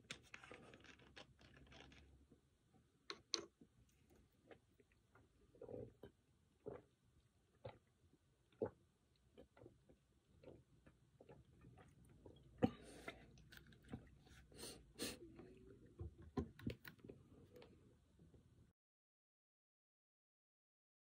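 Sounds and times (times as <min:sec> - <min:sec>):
chewing and swallowing: 0:00.0 - 0:02.4, 0:03.9 - 0:14.6.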